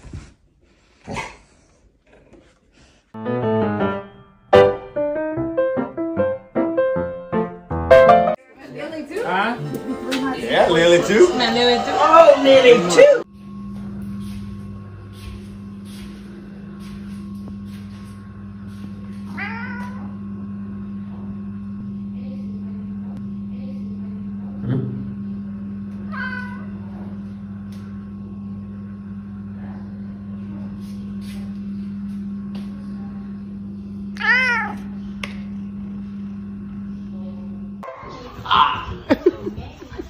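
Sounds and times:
steady low hum: 0:08.8 - 0:40.0
cat meowing: 0:19.3 - 0:20.1, 0:26.1 - 0:26.7, 0:34.2 - 0:34.9.

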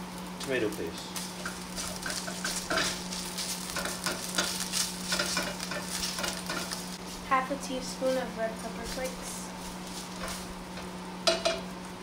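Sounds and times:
onions sizzling in a pan: 0:00.0 - 0:12.0
steady low hum: 0:00.0 - 0:12.0
spoon scraping a pan: 0:01.4 - 0:06.8, 0:09.9 - 0:11.6.

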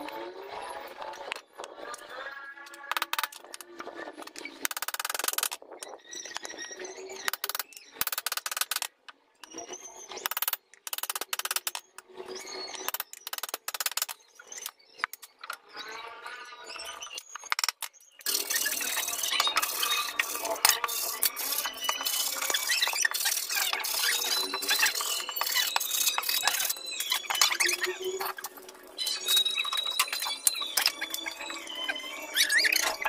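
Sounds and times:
hand saw cutting wood: 0:18.3 - 0:26.8.

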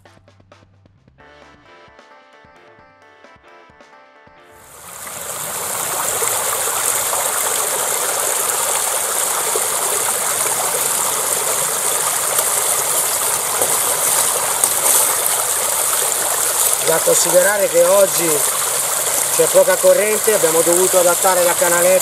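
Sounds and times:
river water rushing over stones: 0:04.7 - 0:22.0.

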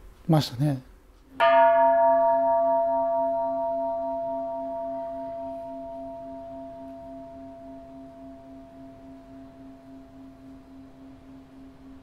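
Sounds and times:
singing bowl ringing: 0:01.4 - 0:12.0.

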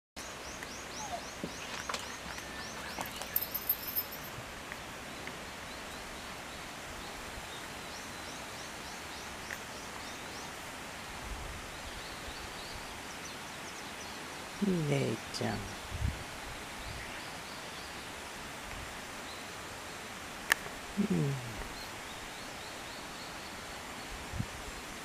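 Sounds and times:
distant birds chirping: 0:00.2 - 0:10.6
steady background hiss: 0:00.2 - 0:25.0.

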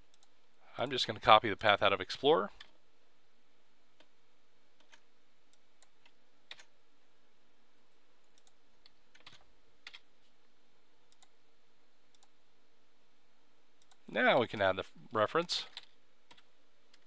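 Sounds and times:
steady low hiss: 0:00.0 - 0:17.0
computer keyboard and mouse clicks: 0:04.8 - 0:06.7, 0:08.2 - 0:10.1, 0:11.1 - 0:11.3, 0:12.1 - 0:12.3, 0:15.7 - 0:17.0.

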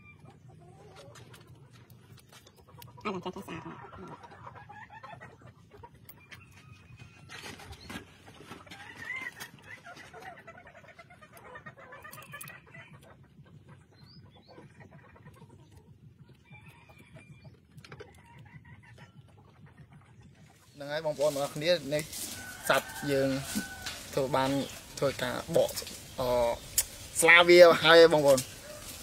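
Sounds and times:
chickens clucking: 0:00.0 - 0:29.0.

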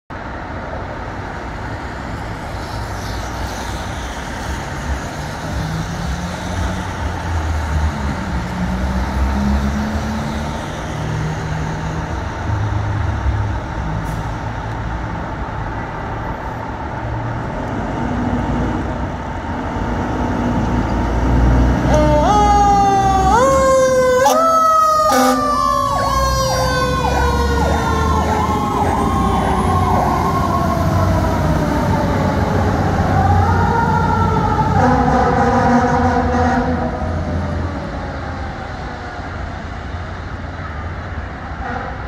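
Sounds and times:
street traffic noise: 0:00.1 - 0:42.0
fire truck diesel engine revving: 0:19.8 - 0:37.7.

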